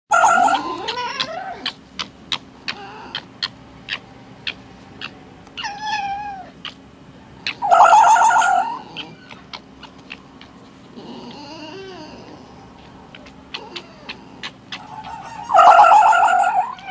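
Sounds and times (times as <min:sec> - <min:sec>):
fox screaming: 0:00.1 - 0:01.8, 0:05.0 - 0:06.8, 0:07.4 - 0:12.4, 0:13.1 - 0:16.9
fox calling: 0:00.1 - 0:16.9.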